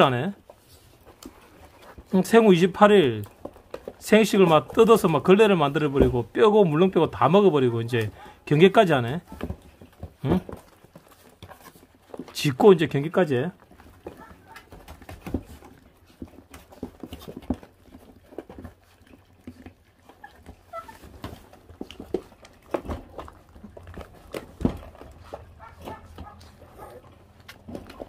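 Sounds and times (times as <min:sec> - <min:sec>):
puppies chewing meat and bone: 0:00.0 - 0:28.0
puppy cries: 0:20.2 - 0:21.1.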